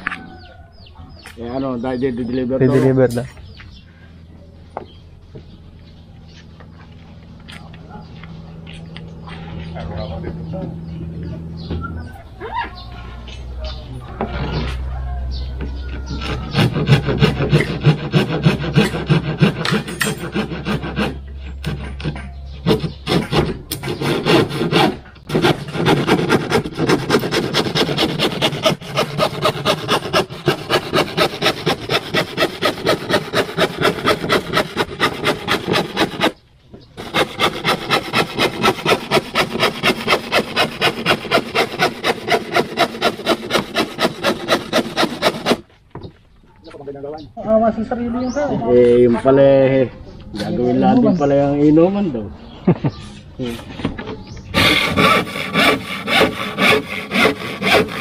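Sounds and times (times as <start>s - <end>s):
hand tool rasping on plywood: 15.8s - 36.4s, 37.0s - 45.7s, 54.5s - 58.0s.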